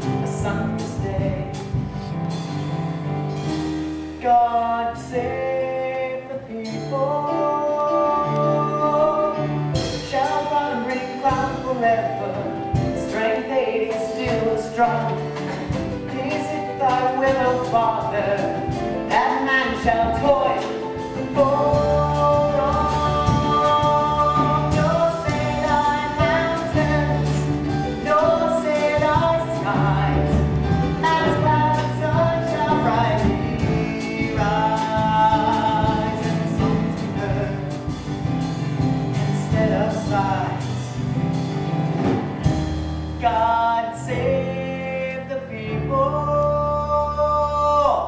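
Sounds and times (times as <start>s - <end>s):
band with bass and drums: 0.0s - 6.1s, 8.4s - 45.0s
people singing: 19.2s - 36.7s.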